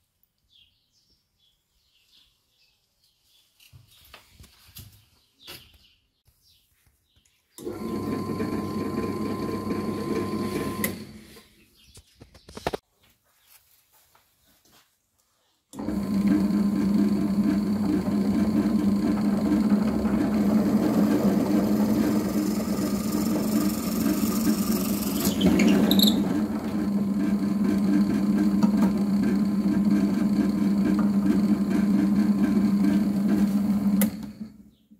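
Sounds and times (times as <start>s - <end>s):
drill press motor hum: 7.6s - 11.4s, 15.8s - 34.6s
drill bit cutting wood: 15.8s - 34.3s.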